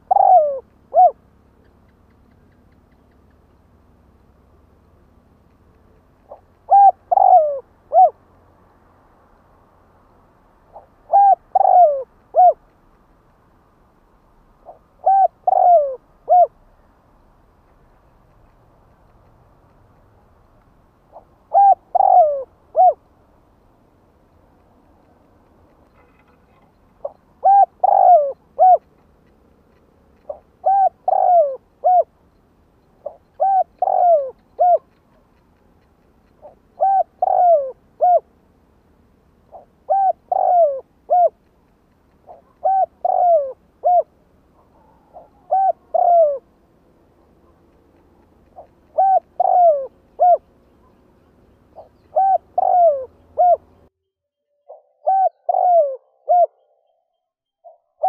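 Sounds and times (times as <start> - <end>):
dove cooing: 0.0 - 2.6, 6.3 - 8.2, 10.7 - 12.6, 14.6 - 16.6, 21.1 - 23.0, 26.0 - 29.1, 30.2 - 32.2, 33.0 - 38.3, 39.5 - 41.4, 42.2 - 46.5, 48.5 - 51.0, 51.7 - 53.8, 54.7 - 56.8.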